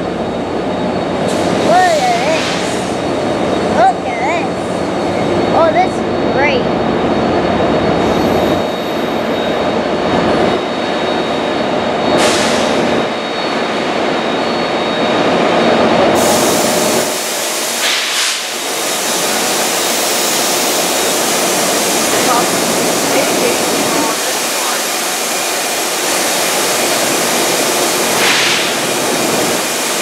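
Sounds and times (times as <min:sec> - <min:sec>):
electric train motor and wheels: 0:00.0 - 0:30.0.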